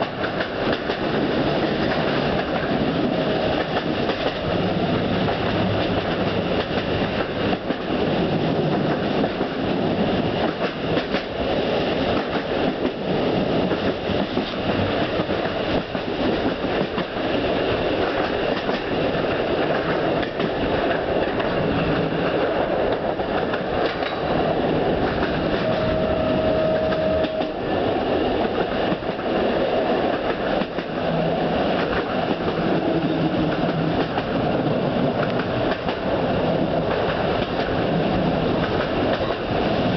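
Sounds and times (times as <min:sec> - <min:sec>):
clickety-clack of rail joints: 0:00.0 - 0:39.9
train wheels rumbling on rails: 0:00.0 - 0:39.9
brief high note: 0:25.6 - 0:27.6.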